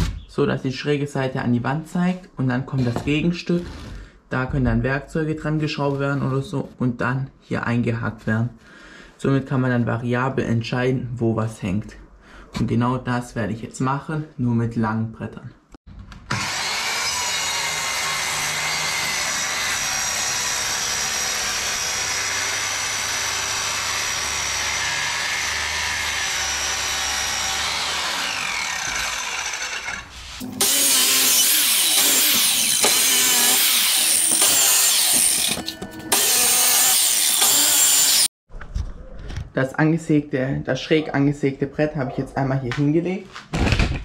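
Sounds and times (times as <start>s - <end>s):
power saw cutting wood: 16.2s - 38.3s.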